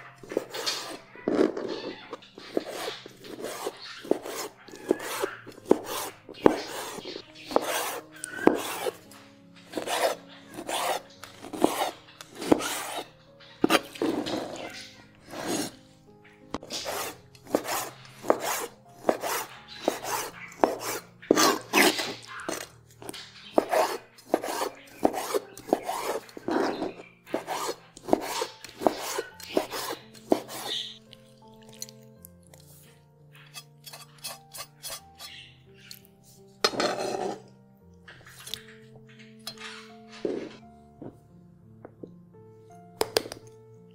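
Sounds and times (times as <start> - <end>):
knife chopping on cutting board: 2.5 - 9.0, 9.7 - 13.0, 16.6 - 22.7, 23.5 - 30.8.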